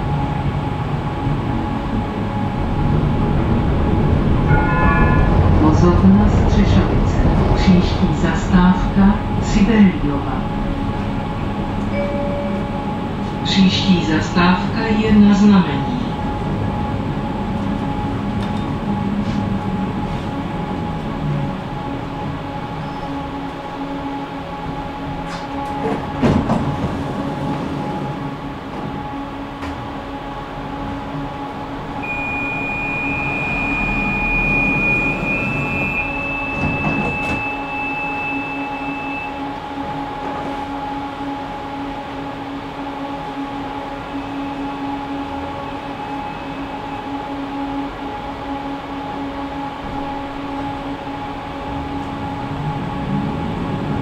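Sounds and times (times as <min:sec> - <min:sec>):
tram electrical hum: 0:00.0 - 0:54.0
thin high whine: 0:04.1 - 0:07.7, 0:10.4 - 0:16.1, 0:31.8 - 0:39.6, 0:43.4 - 0:54.0.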